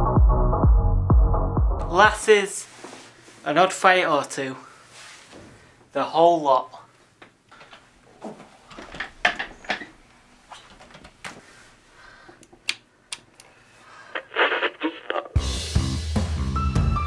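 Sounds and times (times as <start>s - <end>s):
music: 0.0s - 2.2s, 15.3s - 17.0s.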